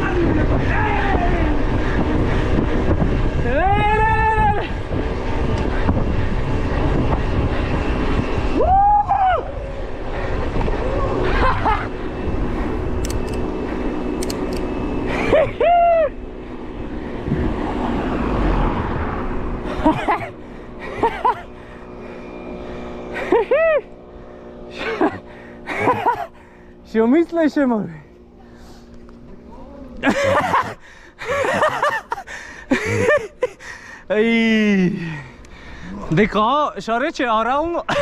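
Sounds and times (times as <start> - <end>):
person shouting: 0.0 - 1.6, 3.5 - 4.8
wind rushing over microphone: 0.0 - 23.1.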